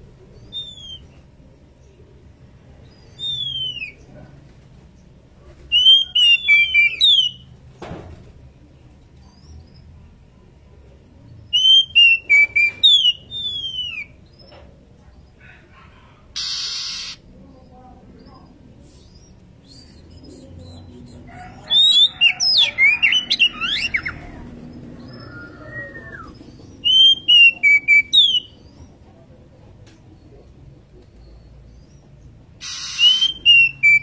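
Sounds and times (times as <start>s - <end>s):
bird whistled calls: 0.5s - 1.1s, 3.1s - 4.0s, 5.7s - 7.4s, 11.6s - 14.2s, 16.4s - 17.2s, 25.1s - 28.6s, 32.6s - 34.0s.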